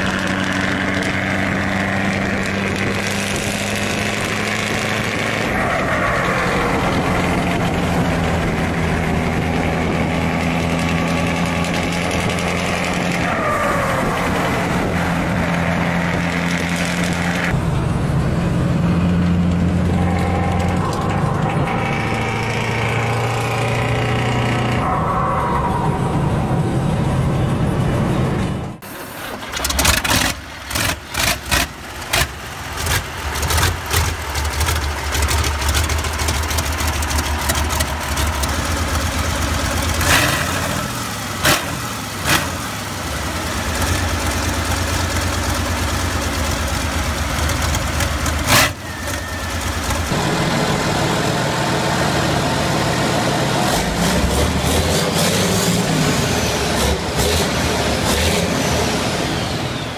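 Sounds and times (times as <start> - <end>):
truck engine running: 0.0 - 25.0, 26.0 - 59.9
diesel engine starting and idling: 17.5 - 59.9.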